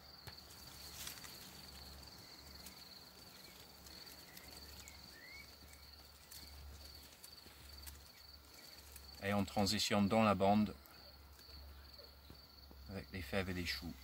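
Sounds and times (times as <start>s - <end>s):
high-pitched insect trill: 0.0s - 14.0s
faint rising chirps: 1.8s - 7.0s.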